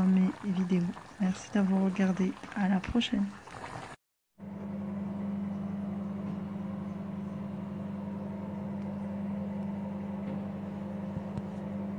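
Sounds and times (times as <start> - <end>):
steady machine hum: 4.4 - 11.9.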